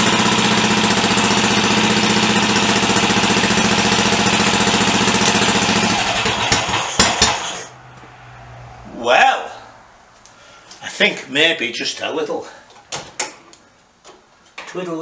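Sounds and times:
motorcycle engine idling: 0.0 - 7.6.

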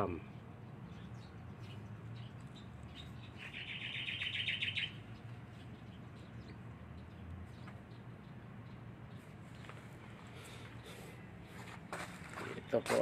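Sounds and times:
bird chirping trill: 0.0 - 9.7.

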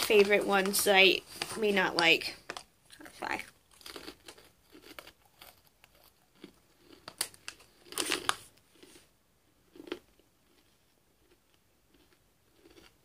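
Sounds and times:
snack bag crinkling: 0.1 - 9.0.

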